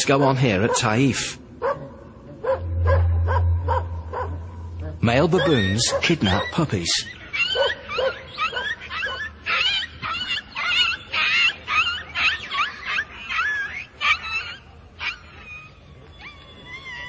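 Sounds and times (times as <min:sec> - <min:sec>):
puppy whimpering and yelping: 0:05.4 - 0:17.0.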